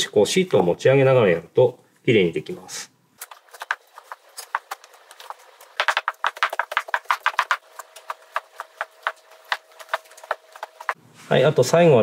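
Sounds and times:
film crackling under squeegee: 0:03.2 - 0:11.0.

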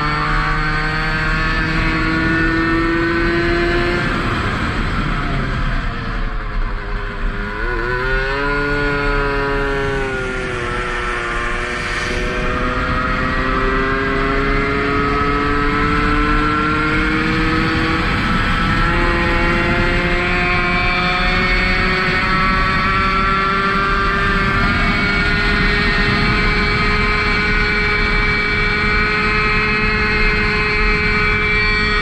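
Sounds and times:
moped engine revving: 0:00.0 - 0:32.0
wind rushing: 0:07.9 - 0:20.5.

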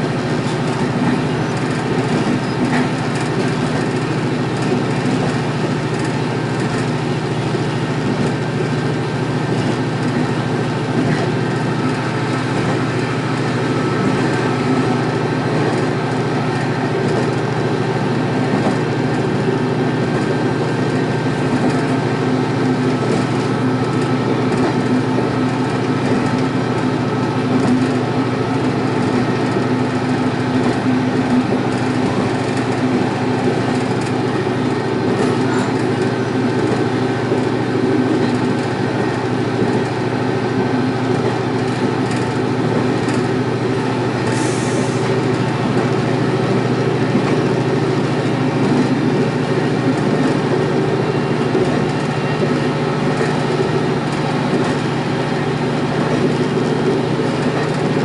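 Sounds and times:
diesel railcar engine drone: 0:00.0 - 0:58.0
wheels running on rails: 0:00.0 - 0:58.0.

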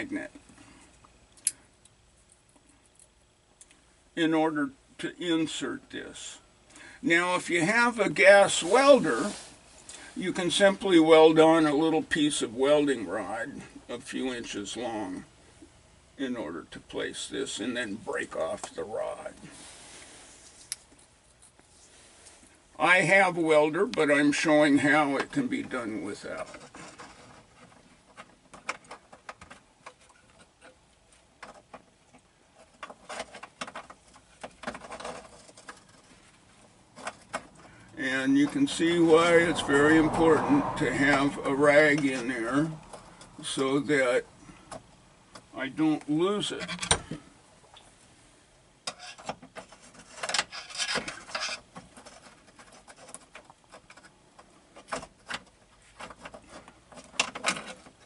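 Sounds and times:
cloth rag rubbing: 0:08.4 - 0:09.8
metal tool scraping sheet metal: 0:49.9 - 0:51.7.

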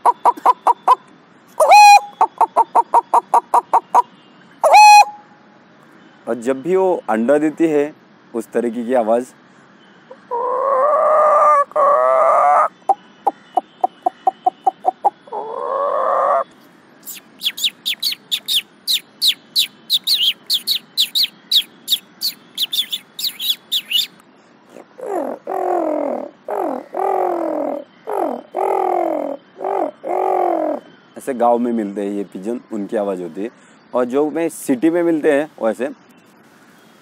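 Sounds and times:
man imitating hen cackle: 0:01.6 - 0:04.0, 0:04.6 - 0:05.2, 0:10.3 - 0:16.4, 0:24.8 - 0:30.8
man imitating sparrow chirping: 0:17.0 - 0:30.8
man imitating pigeon coos: 0:24.8 - 0:30.8.

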